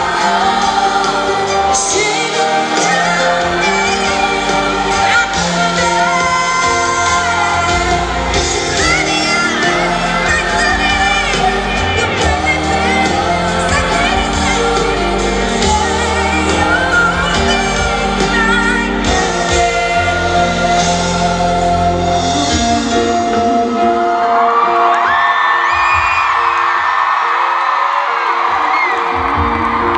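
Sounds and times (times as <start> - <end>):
woman singing a pop ballad: 0.0 - 24.6, 28.5 - 29.9
keyboard accompaniment: 0.0 - 29.9.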